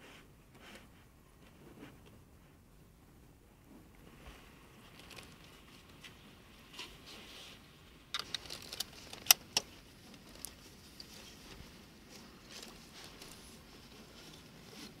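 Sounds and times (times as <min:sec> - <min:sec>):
seat belt webbing rustling: 0:08.2 - 0:09.6.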